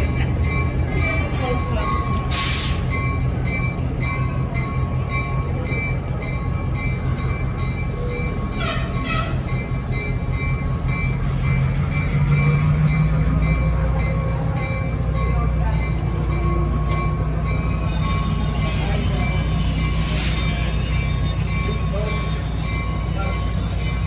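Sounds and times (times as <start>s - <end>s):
train rolling past: 0.0s - 24.0s
wheel squeal: 16.9s - 24.0s.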